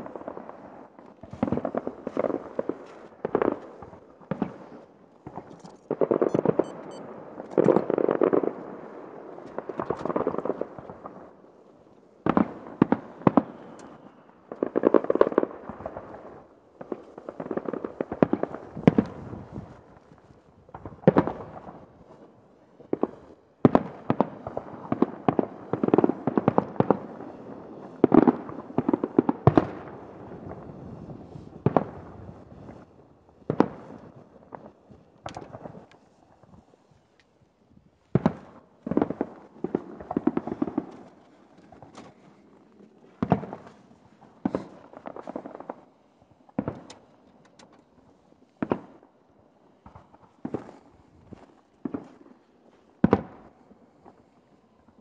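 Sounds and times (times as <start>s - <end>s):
fireworks bangs and crackles: 0.0s - 55.0s.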